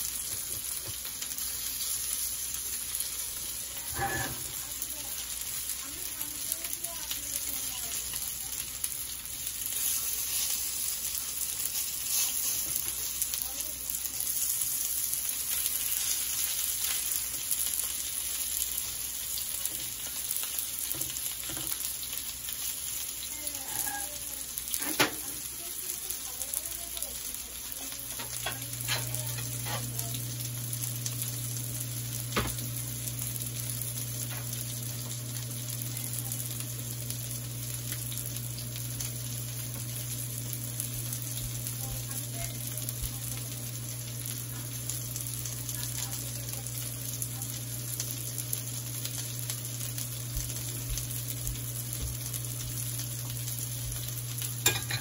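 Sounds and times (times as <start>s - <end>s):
patties sizzling in frying pan: 0.0s - 55.0s.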